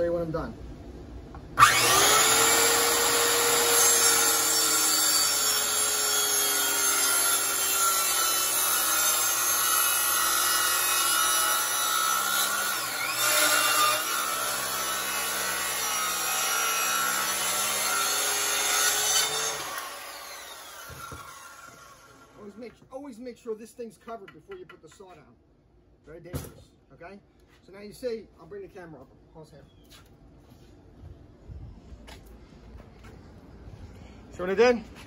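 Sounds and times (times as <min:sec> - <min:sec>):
circular saw cutting wood: 0:01.6 - 0:22.5
saw winding down: 0:01.6 - 0:22.5.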